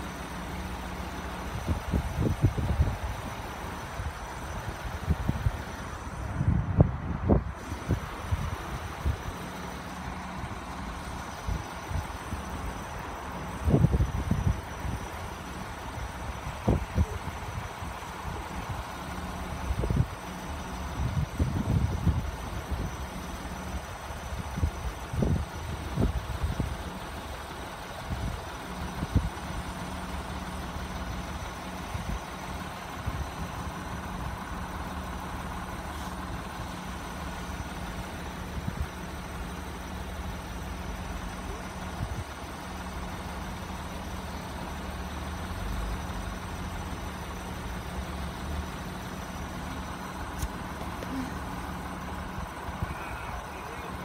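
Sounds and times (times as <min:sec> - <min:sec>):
car engine idling: 0:00.0 - 0:54.0.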